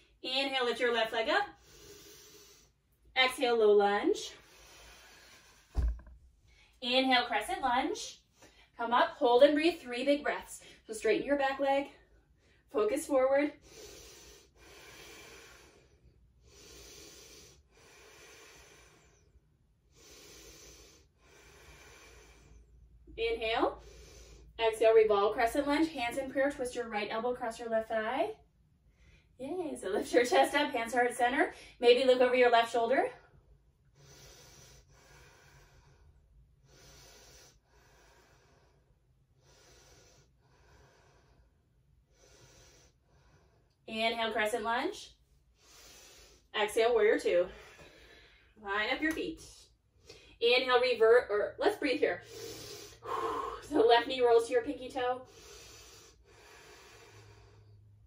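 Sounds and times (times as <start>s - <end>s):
woman breathing slowly: 1.5s - 3.1s, 4.2s - 6.8s, 13.6s - 24.6s, 33.2s - 43.8s, 45.3s - 46.5s, 47.4s - 48.6s, 52.2s - 53.8s, 55.2s - 58.0s.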